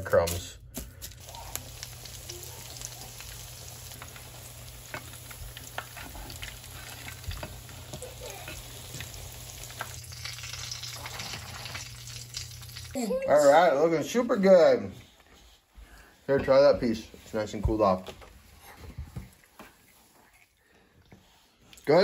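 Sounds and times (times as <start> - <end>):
fish cakes sizzling in oil: 1.1 - 13.3.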